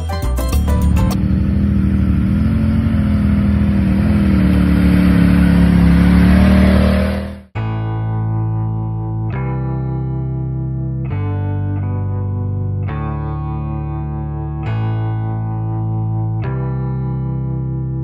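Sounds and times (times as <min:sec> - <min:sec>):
utility vehicle engine droning: 0:00.0 - 0:07.6.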